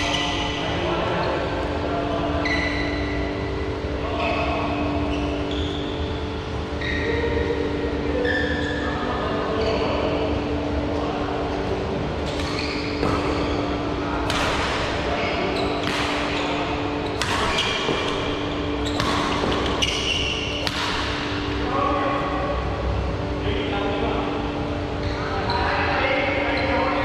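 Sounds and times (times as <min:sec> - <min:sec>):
steady hum: 0:00.0 - 0:27.0
rackets striking shuttlecock: 0:14.2 - 0:15.1, 0:15.7 - 0:21.5.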